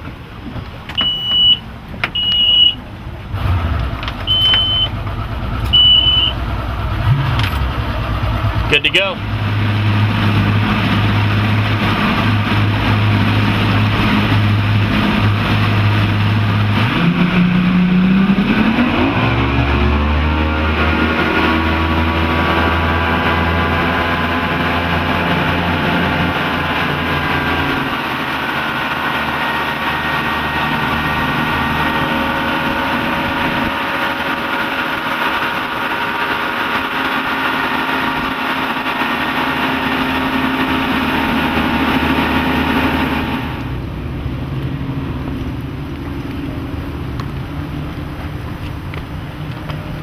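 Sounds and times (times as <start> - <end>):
outboard engines running: 0.0 - 50.0
water noise: 0.0 - 50.0
wind: 0.0 - 50.0.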